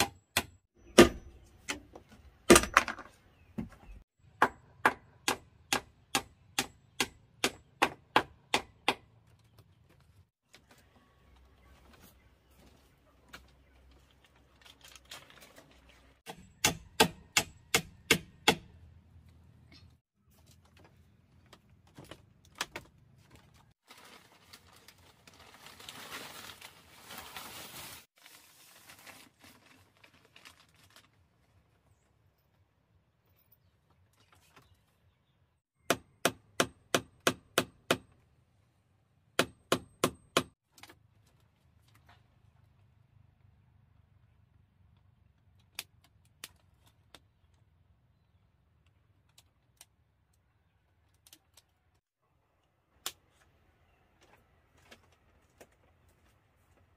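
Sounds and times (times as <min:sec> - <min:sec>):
tarp rustling: 0:23.8 - 0:31.6.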